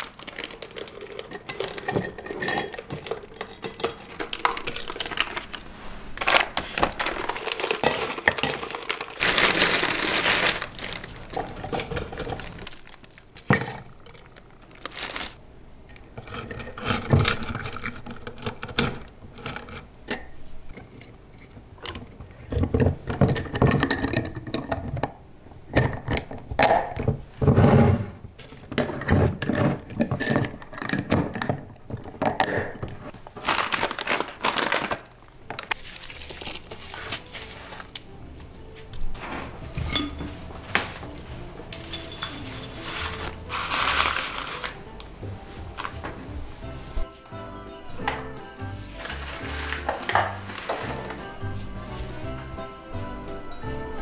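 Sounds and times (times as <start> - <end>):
dry potpourri rustling: 0.0 - 15.4, 33.0 - 53.9
glass jar clinks and knocks: 1.0 - 5.0, 28.8 - 32.9, 39.8 - 40.4, 41.8 - 43.2.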